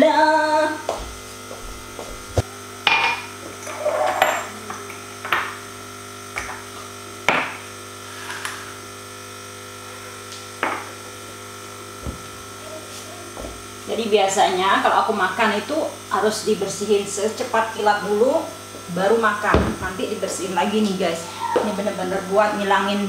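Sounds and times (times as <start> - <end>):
steady hum: 0.0 - 23.0
object scraping on countertop: 3.6 - 4.5.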